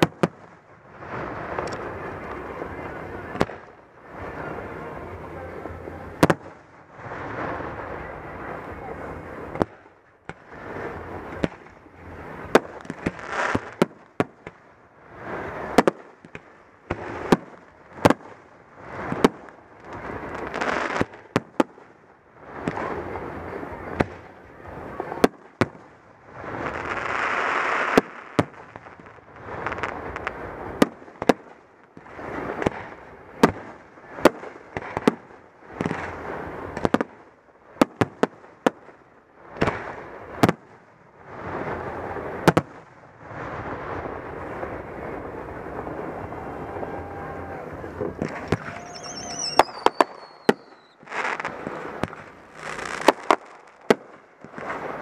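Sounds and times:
firework shells banging: 47.8 - 54.2.

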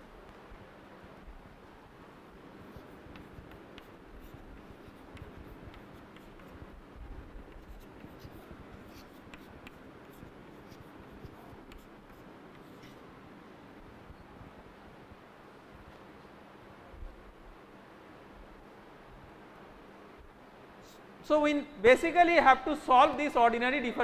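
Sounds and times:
room hiss: 0.0 - 24.0
chalk scratching on chalkboard: 2.6 - 13.1.

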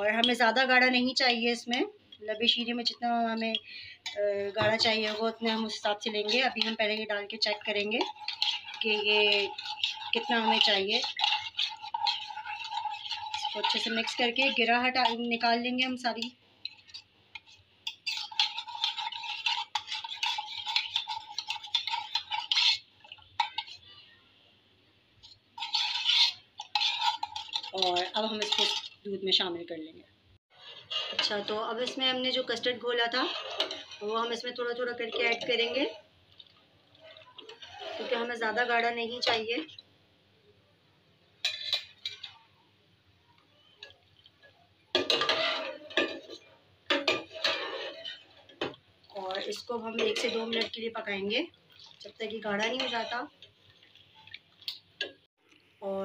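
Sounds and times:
metal spoon stirring in metal mug: 0.0 - 24.1, 25.2 - 29.1, 30.6 - 36.1, 36.9 - 39.8, 41.4 - 42.4, 43.6 - 55.2.

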